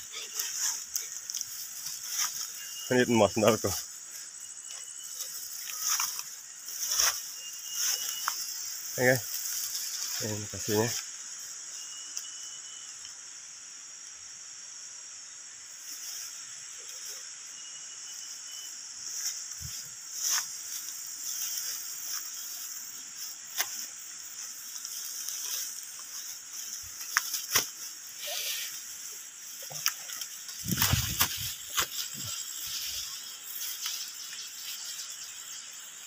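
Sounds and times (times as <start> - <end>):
footsteps rustling through grass: 0.0 - 11.2, 19.0 - 36.0
high-pitched insect chorus: 0.0 - 36.0.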